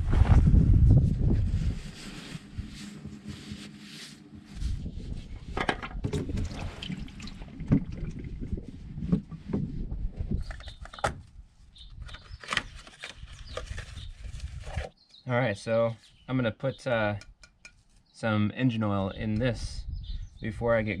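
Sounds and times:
oil filter knocking and clattering: 5.5 - 8.2
oil trickling into drain pan: 6.0 - 8.5.

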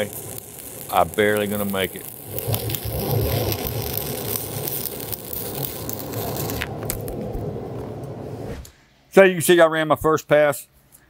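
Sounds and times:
welding arc crackling: 0.0 - 8.2.

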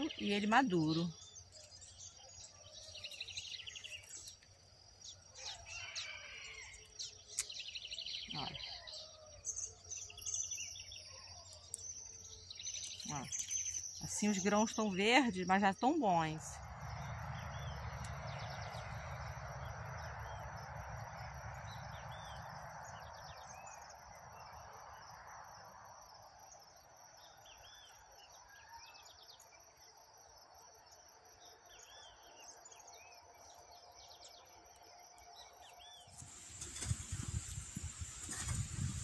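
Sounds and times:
small birds chirping: 0.0 - 16.6.

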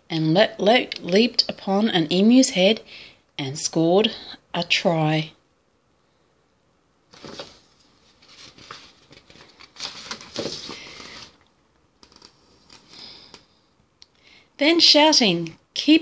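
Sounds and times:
book pages turning: 7.1 - 13.4.

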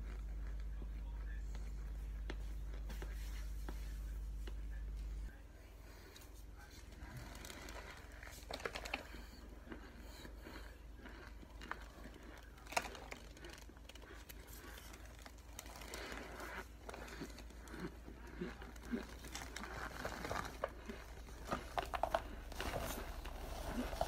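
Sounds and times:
chewing with dry crunches: 0.0 - 24.0.

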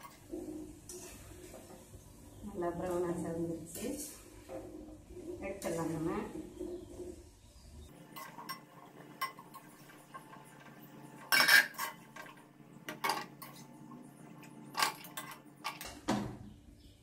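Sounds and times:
metal ladle clinking and scraping: 11.2 - 12.0.

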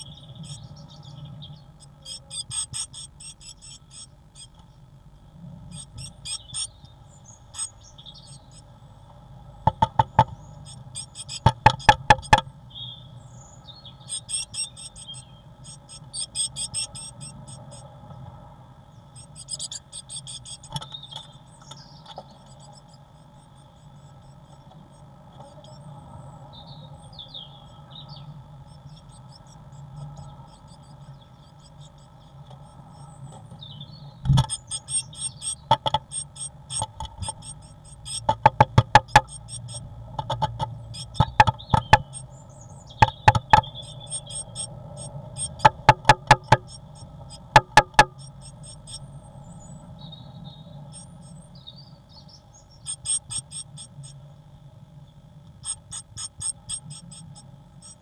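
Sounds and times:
faint steady hum: 0.0 - 58.0
bird pecking on wood: 9.6 - 12.5, 19.4 - 22.3, 34.2 - 42.3, 42.9 - 49.0, 55.6 - 58.0.

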